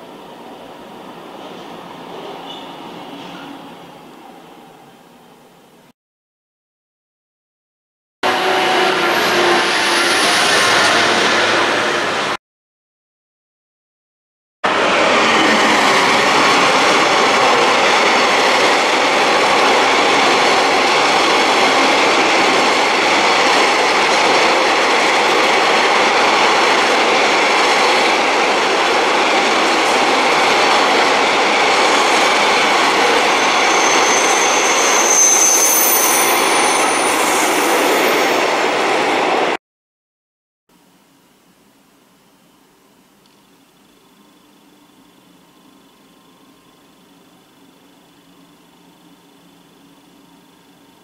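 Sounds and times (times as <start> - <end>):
train wheels rumbling on rails: 14.7 - 35.6
high squeal: 32.9 - 38.6.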